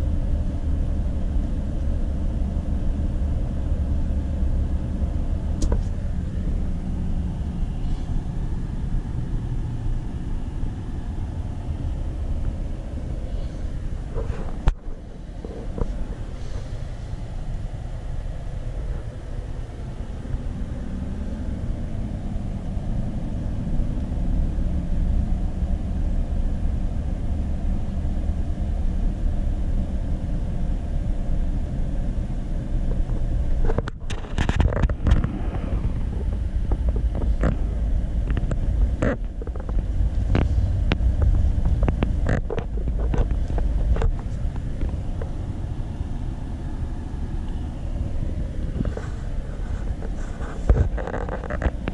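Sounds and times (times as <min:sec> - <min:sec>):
car cabin engine and road rumble: 0:00.0 - 0:51.9
sharp clicks and knocks: 0:36.3 - 0:45.3.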